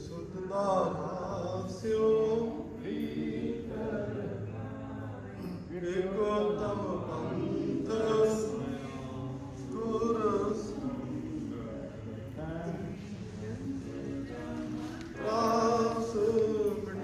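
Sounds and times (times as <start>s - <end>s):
men chanting a prayer: 0.0s - 17.0s
steady low hum: 0.0s - 17.0s.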